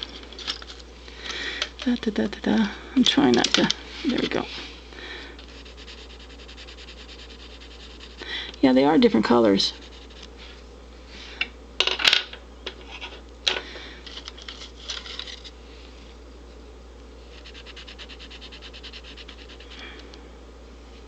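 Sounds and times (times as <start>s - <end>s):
pencil lead scratching on paper: 5.5s - 8.2s, 9.7s - 10.3s, 17.3s - 19.8s.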